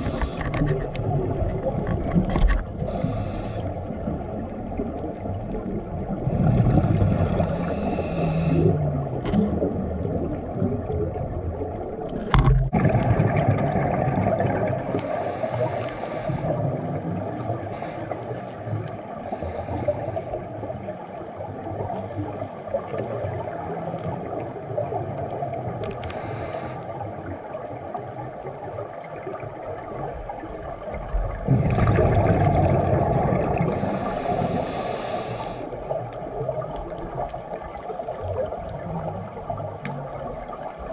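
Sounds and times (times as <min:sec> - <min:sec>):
diver inhaling through regulator: 0:00.0 - 0:00.6, 0:02.8 - 0:03.8, 0:07.4 - 0:08.8, 0:14.8 - 0:16.7, 0:17.7 - 0:18.6, 0:19.2 - 0:20.5, 0:26.0 - 0:27.0, 0:33.6 - 0:35.8
gurgling exhaled bubbles: 0:00.0 - 0:19.6, 0:27.0 - 0:40.9.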